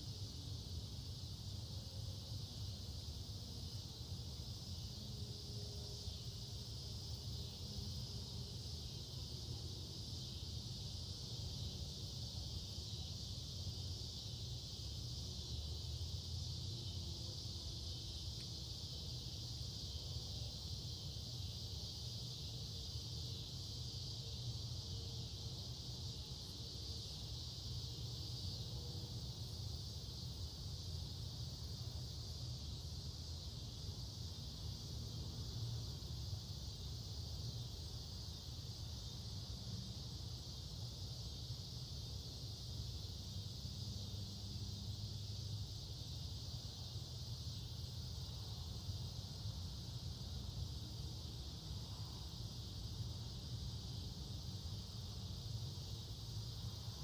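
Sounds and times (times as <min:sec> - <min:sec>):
insects chorus drone: 0:00.0 - 0:57.0.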